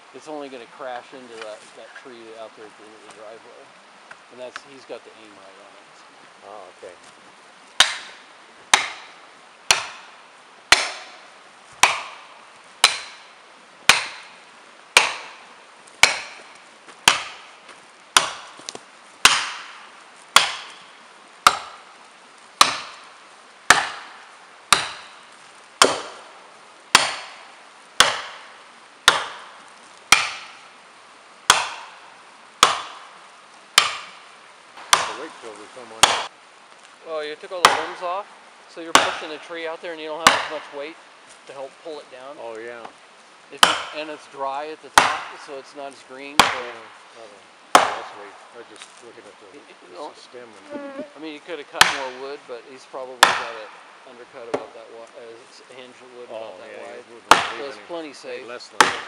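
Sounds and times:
axe driving wedges: 0:11.8 - 0:12.2, 0:15.0 - 0:15.4, 0:16.0 - 0:17.5, 0:45.0 - 0:45.3, 0:47.7 - 0:48.1.

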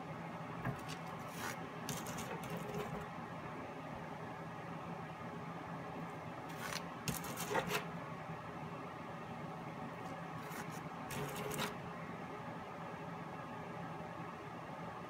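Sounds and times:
faint steady hum: 0:00.0 - 0:15.0
plastic comb scraping canvas: 0:00.8 - 0:03.0, 0:06.5 - 0:07.9, 0:10.4 - 0:11.8.

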